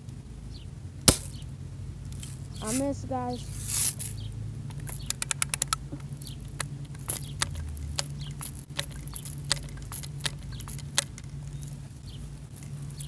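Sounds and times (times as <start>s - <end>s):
small sharp clicks: 3.7s - 11.8s.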